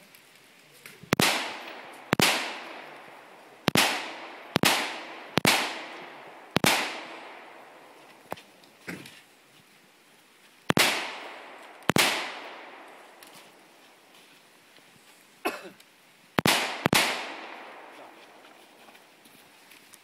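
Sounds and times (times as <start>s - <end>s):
gunshots with echo: 1.2s - 8.0s, 10.7s - 13.0s, 16.4s - 18.2s.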